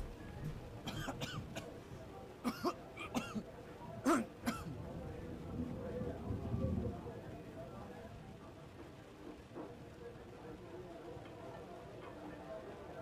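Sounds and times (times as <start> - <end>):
man coughing: 2.4 - 3.4.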